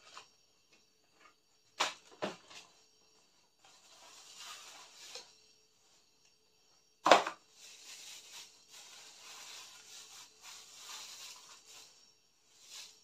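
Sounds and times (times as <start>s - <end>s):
plastic bags rustling and crinkling: 3.6s - 5.5s, 7.0s - 13.0s.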